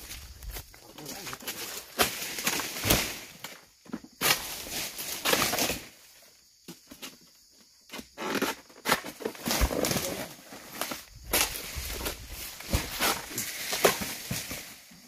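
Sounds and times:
blade hacking palm frond: 11.3s - 14.8s.

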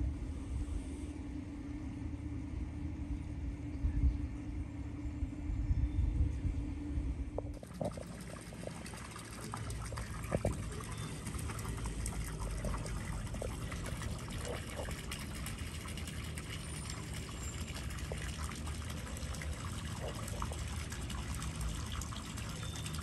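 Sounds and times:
water pouring and splashing: 7.5s - 23.0s.

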